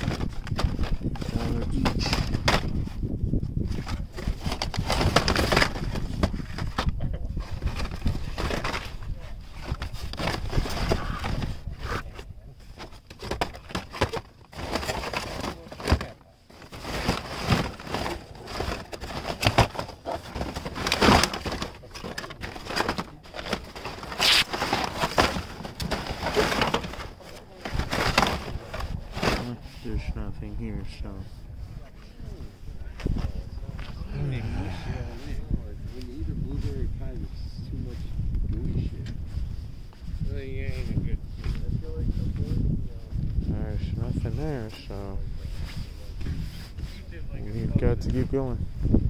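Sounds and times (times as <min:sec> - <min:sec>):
plastic packaging crinkling and clacking: 0:00.0 - 0:02.8, 0:03.8 - 0:30.1.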